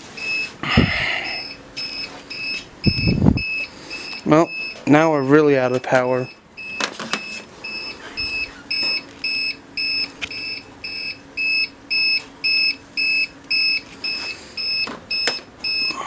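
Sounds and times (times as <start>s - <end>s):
electronic alarm beeping: 0.2s - 16.0s.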